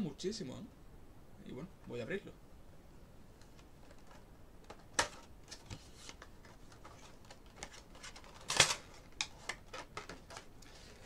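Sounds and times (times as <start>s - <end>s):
cardboard rustling: 3.5s - 11.0s.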